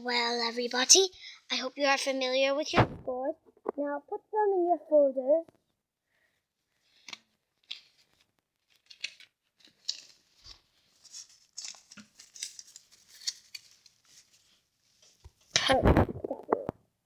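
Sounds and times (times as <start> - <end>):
paper rustling and crinkling: 6.9 - 16.1.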